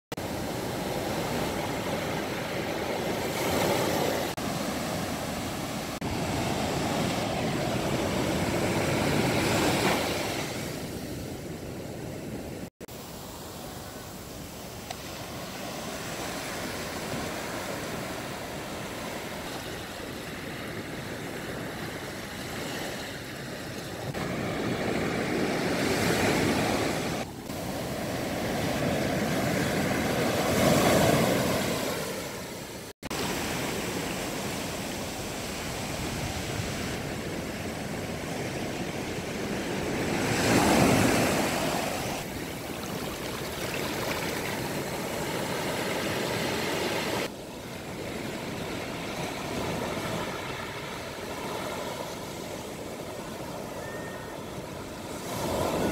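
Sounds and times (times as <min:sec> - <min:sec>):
surf breaking on a beach: 0:00.2 - 0:11.7, 0:12.4 - 0:55.9.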